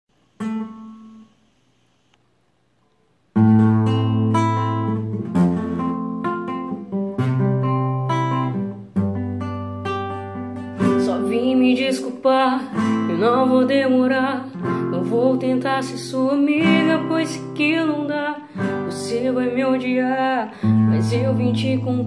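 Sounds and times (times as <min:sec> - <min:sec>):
acoustic guitar strumming chords: 0:00.4 - 0:01.4, 0:03.3 - 0:22.0
woman singing: 0:10.8 - 0:22.0.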